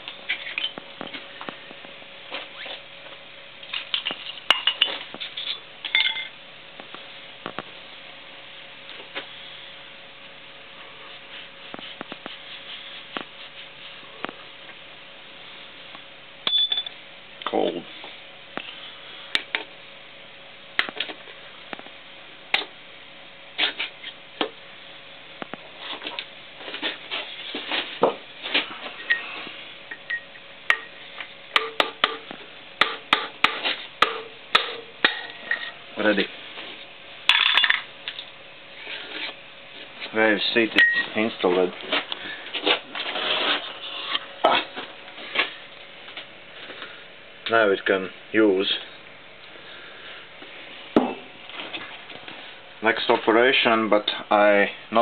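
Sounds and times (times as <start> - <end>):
faint steady hum: 0.0 - 55.0
hammer tapping on steel pipe: 31.6 - 32.2.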